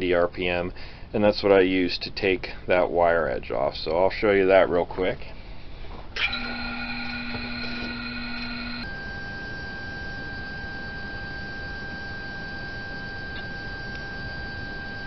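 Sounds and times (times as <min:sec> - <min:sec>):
sharpener motor whining: 0:06.2 - 0:15.0.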